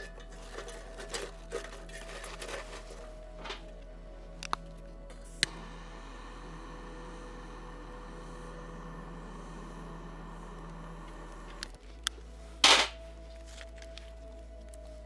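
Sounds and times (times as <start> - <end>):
soft background music: 0.0 - 15.0.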